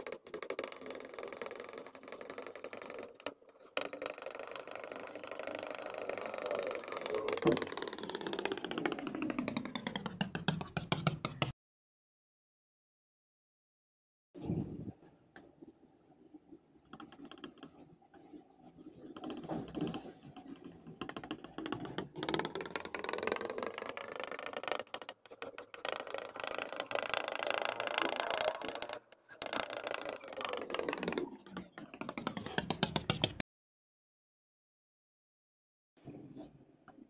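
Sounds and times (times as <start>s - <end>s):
palette knife scraping paint: 8.7s - 11.6s, 19.6s - 33.4s.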